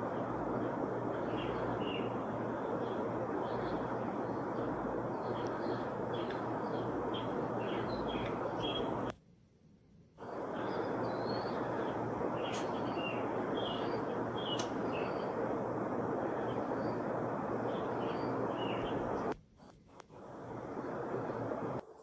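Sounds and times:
small birds chirping: 0.0s - 9.1s, 10.2s - 21.8s
outdoor background noise: 0.0s - 22.0s
sharp clicks: 14.5s - 14.8s.

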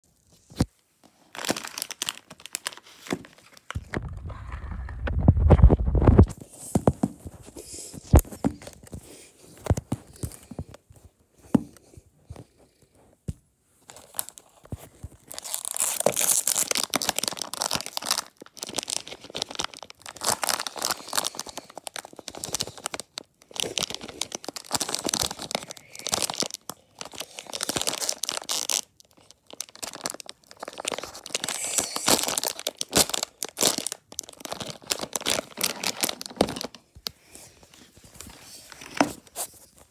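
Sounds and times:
foil packet crinkling and tearing: 0.4s - 6.4s, 13.9s - 37.0s.

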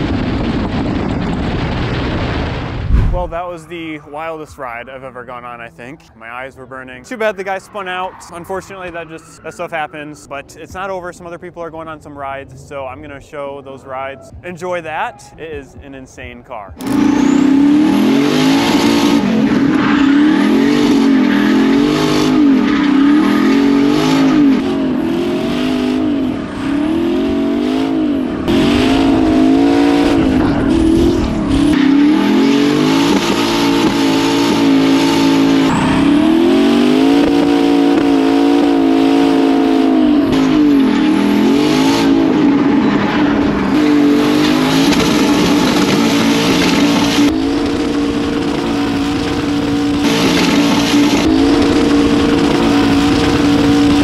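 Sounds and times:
car engine revving: 16.8s - 54.0s.

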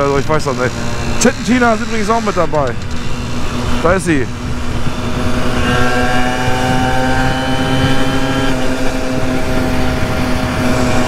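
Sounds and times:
moped engine cruising: 0.0s - 11.0s
wind rumble on microphone: 2.7s - 11.0s.

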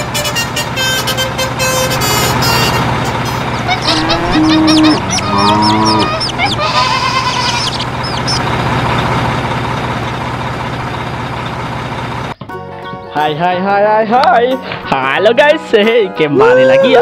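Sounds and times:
held honking calls: 0.0s - 9.9s
steady low hum: 0.7s - 12.3s
birds chirping: 2.3s - 10.0s.

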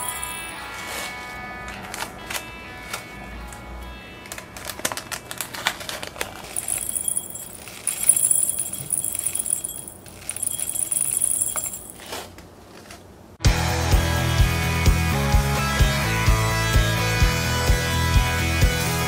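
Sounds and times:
beads pattering into glass jar: 0.0s - 0.6s, 6.5s - 12.1s.

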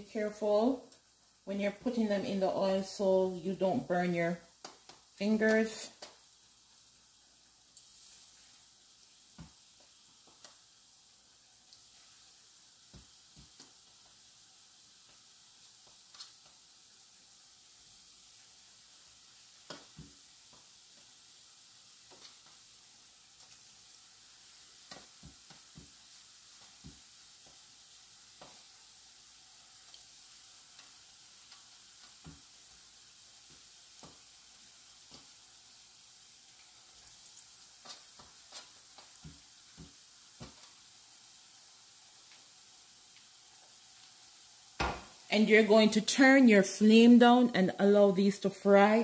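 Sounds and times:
dumplings deep-frying in oil: 0.0s - 49.0s
oil popping and crackling: 4.4s - 45.4s.

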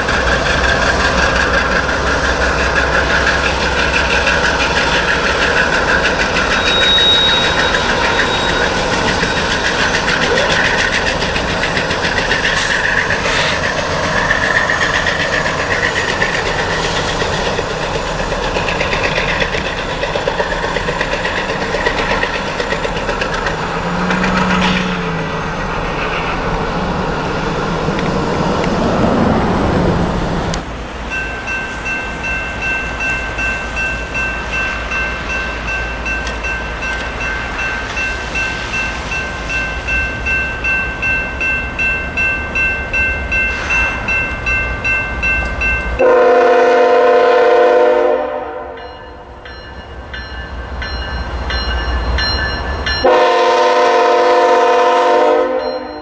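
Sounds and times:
railroad crossing bell ringing: 0.0s - 25.6s, 30.8s - 56.0s
diesel locomotive engine: 0.0s - 56.0s
locomotive horn blast: 46.0s - 48.8s, 53.0s - 56.0s.

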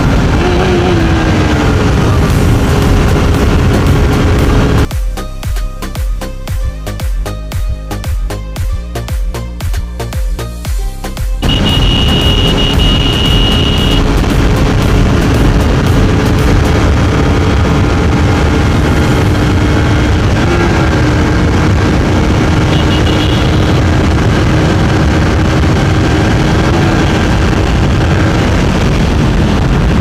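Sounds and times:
motorcycle engine at high revs: 0.0s - 4.9s, 11.4s - 30.0s
wind rush on microphone: 0.0s - 4.9s, 11.5s - 30.0s.

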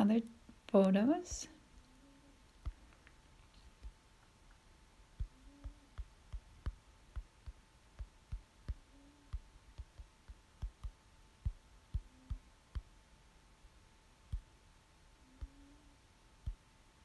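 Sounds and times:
faint steady hum: 0.0s - 17.0s
fingertips tapping a touchscreen: 2.6s - 4.6s, 5.2s - 12.9s, 14.3s - 14.5s.

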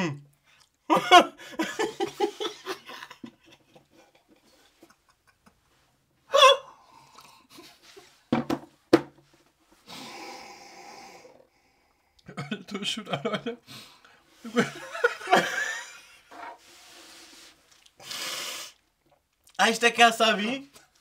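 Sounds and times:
man laughing: 0.9s - 5.6s, 12.3s - 13.6s, 14.4s - 16.1s.

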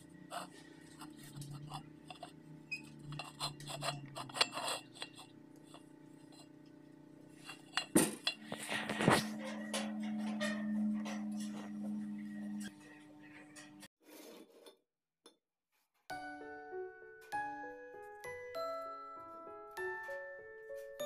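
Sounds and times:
metal pipes clinking together: 7.4s - 12.7s.

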